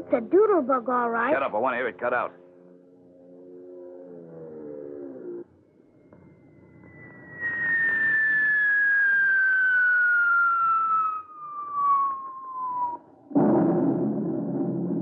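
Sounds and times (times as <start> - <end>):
falling whistle: 6.0 - 13.3
rushing noise: 6.9 - 15.0
loud explosion: 7.3 - 15.0.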